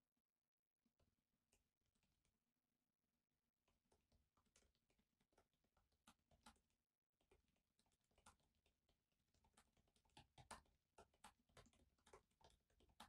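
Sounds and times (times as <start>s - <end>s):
laptop keyboard typing: 3.6s - 13.0s.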